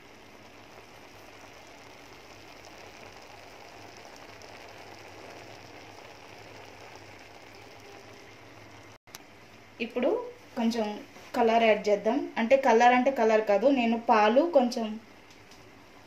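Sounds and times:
food sizzling in a pan: 0.0 - 9.0.

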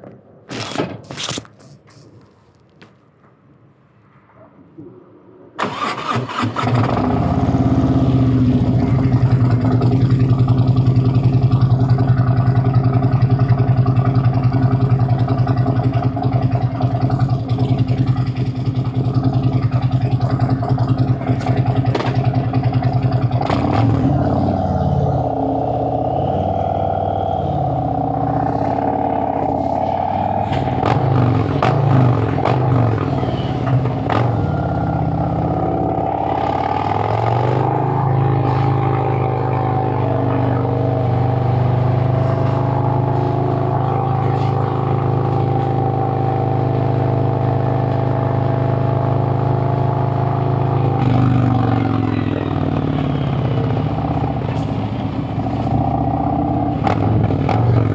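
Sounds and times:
motorcycle revving and accelerating: 5.6 - 57.9
motorcycle engine idling: 5.7 - 57.9.

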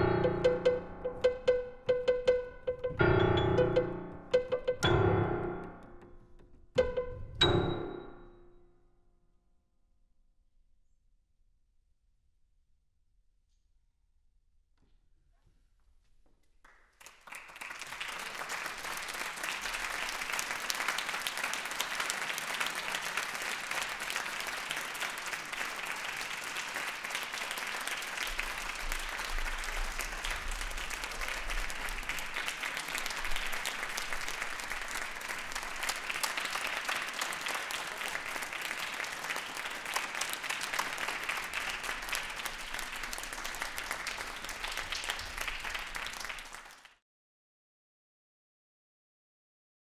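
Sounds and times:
audience applauding: 16.6 - 47.0.

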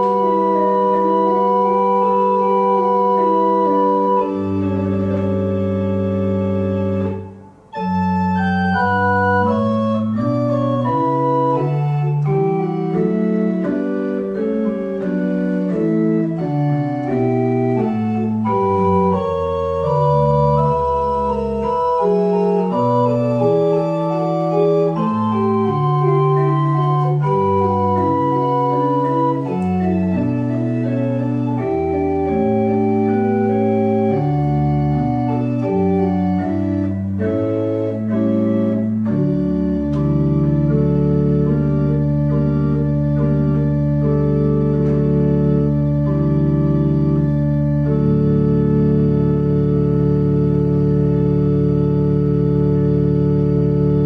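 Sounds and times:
church organ playing chords: 0.0 - 54.0.

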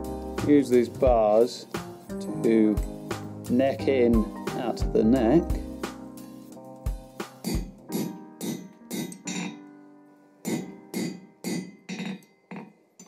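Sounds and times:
guitar background music: 0.0 - 9.7
hammer striking steel on anvil: 7.4 - 9.6, 10.5 - 12.7.

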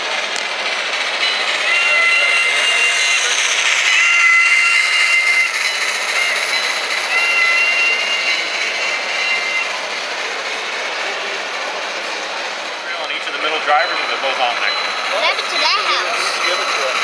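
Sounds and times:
two-note steam whistle: 4.0 - 9.7.

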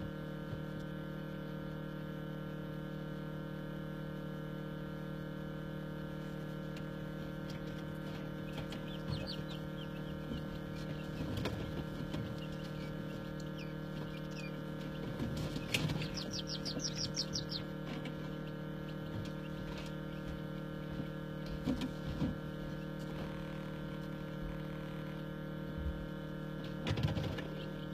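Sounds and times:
incubator hum: 0.0 - 27.9
chicks moving on wire floor: 7.4 - 22.8
chicks peeping: 7.5 - 21.1.

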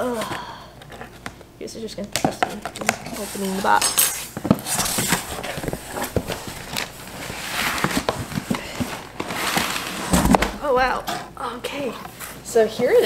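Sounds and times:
cardboard scraping and rustling: 2.3 - 11.3.

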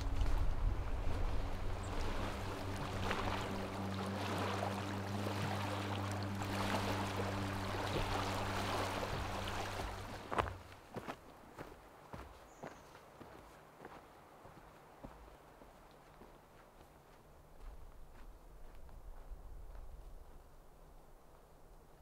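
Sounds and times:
small waves lapping on pebbles: 0.0 - 10.7.

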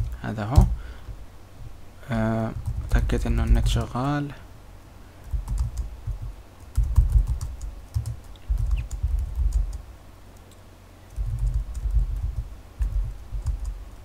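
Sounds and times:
computer keyboard typing: 5.2 - 9.8, 11.1 - 13.8.

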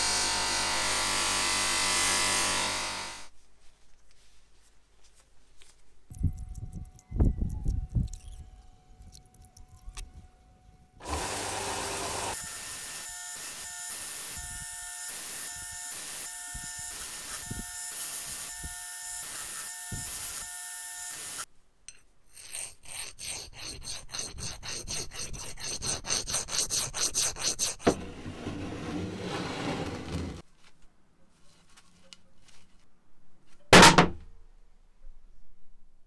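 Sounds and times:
belt sander grinding metal: 11.0 - 14.1, 22.9 - 30.4.

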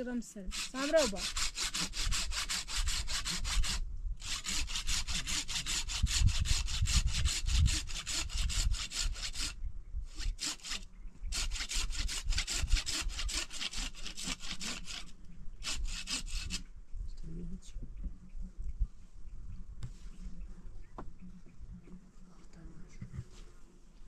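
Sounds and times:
hand saw cutting wood: 0.5 - 16.6.

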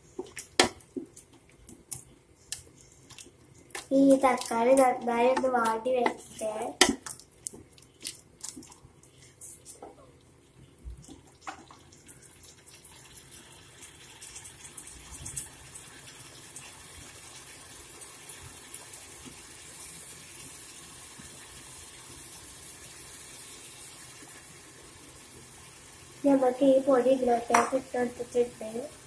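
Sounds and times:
small crackles and pops: 0.1 - 12.9
sauce sizzling in a pot: 3.7 - 29.0.

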